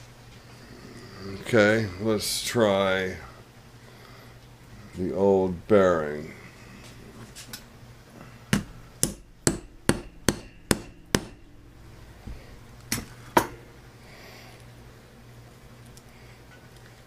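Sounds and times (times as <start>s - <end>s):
hammer tapping metal: 8.5s - 13.7s.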